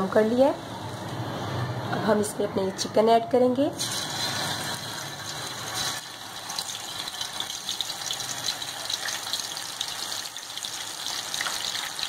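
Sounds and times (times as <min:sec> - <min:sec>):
chicken sizzling in hot oil: 0:03.8 - 0:12.0.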